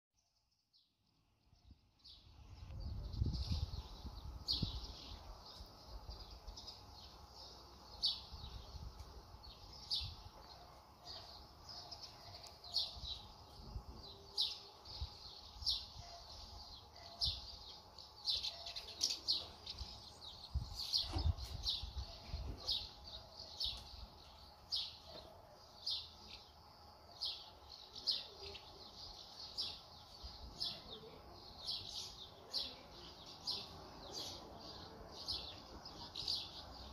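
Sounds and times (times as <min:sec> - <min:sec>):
small birds chirping: 0:00.2 - 0:36.9
wind rumble on microphone: 0:02.4 - 0:05.4, 0:20.4 - 0:22.7.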